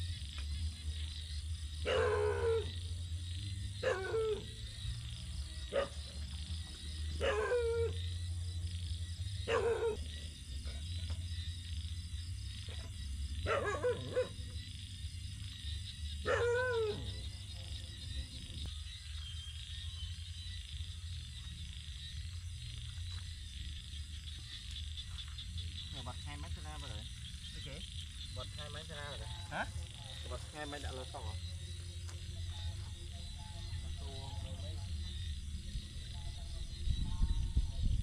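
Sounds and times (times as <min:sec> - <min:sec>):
insects droning: 0:00.0 - 0:38.0
dog barking and yelping: 0:01.8 - 0:02.8, 0:03.8 - 0:04.7, 0:05.7 - 0:06.0, 0:07.2 - 0:08.0, 0:09.5 - 0:10.1, 0:13.4 - 0:14.4, 0:16.2 - 0:17.2.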